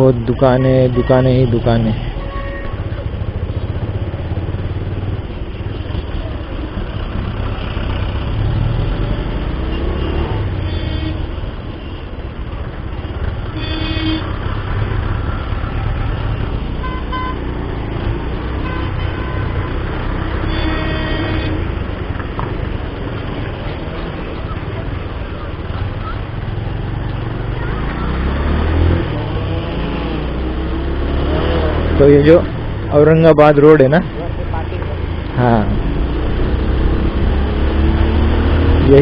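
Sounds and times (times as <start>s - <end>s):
vehicle horns tooting: 0.4s - 3.0s, 9.6s - 12.0s, 13.5s - 14.4s, 16.8s - 17.5s, 18.6s - 21.7s.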